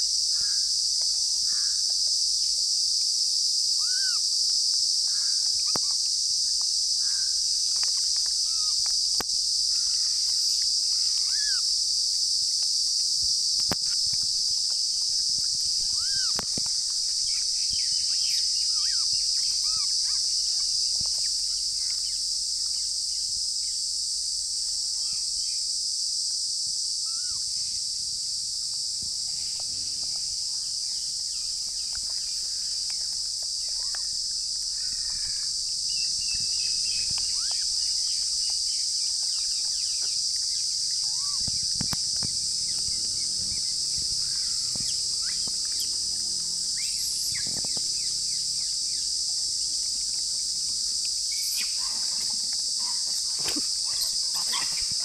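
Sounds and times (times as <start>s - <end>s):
insects droning: 0.0s - 55.0s
short chirping calls: 15.4s - 16.5s, 17.2s - 20.7s, 34.8s - 48.6s, 51.2s - 52.0s.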